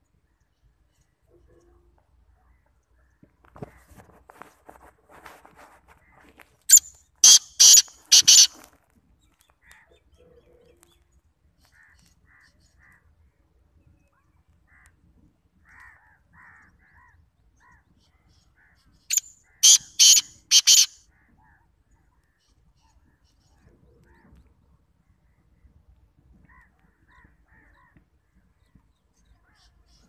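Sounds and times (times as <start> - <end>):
bird calling harsh notes: 6.7 - 8.7, 19.1 - 21.0.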